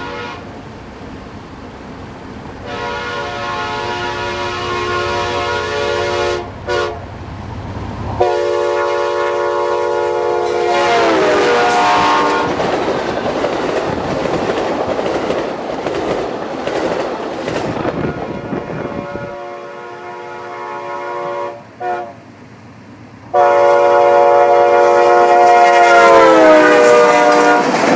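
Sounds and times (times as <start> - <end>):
locomotive air horn blasts: 0.0 - 0.6, 2.6 - 7.2, 8.2 - 12.6, 18.0 - 22.3, 23.3 - 27.8
wheel clatter on rails: 11.5 - 18.1, 27.1 - 27.9.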